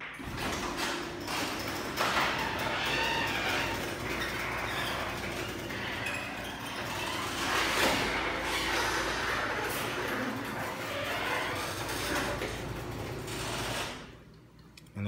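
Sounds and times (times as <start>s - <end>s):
garage door opener running: 0.0s - 14.4s.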